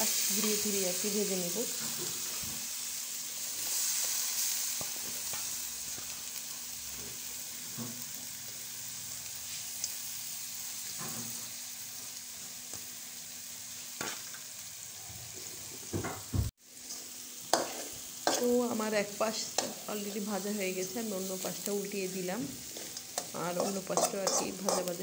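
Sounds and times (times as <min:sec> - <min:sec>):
prawns and onions sizzling in oil: 0:00.0 - 0:25.0.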